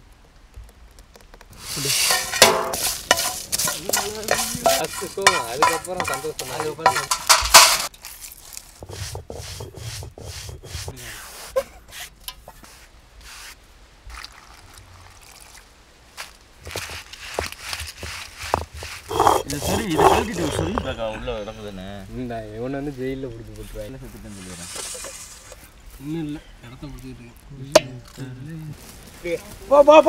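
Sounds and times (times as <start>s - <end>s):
stone roller grinding on slab: 1.6s - 7.9s, 8.8s - 11.0s, 16.7s - 21.1s
thick puree stirred in steel pot: 1.6s - 7.9s, 8.5s - 11.0s.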